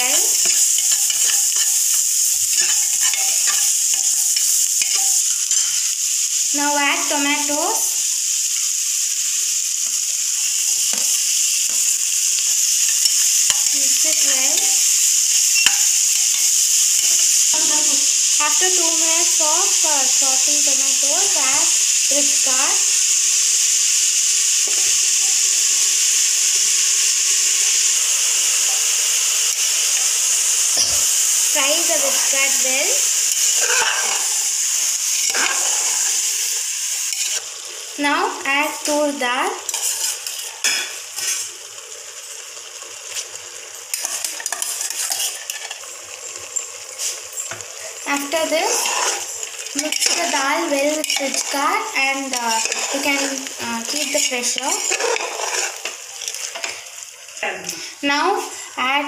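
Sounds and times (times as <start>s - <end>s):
onions sizzling in hot oil: 0.0s - 59.0s
spoon scraping and tapping pot: 0.4s - 5.8s, 44.0s - 45.8s.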